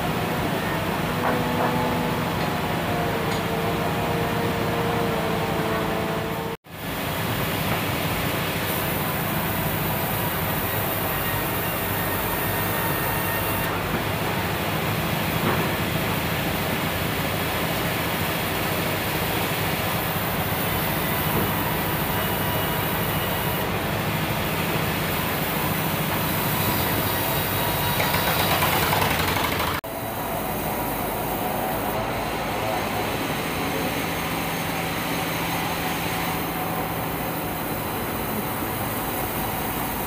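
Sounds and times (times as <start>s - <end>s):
sawmill machinery drone: 0.0s - 40.0s.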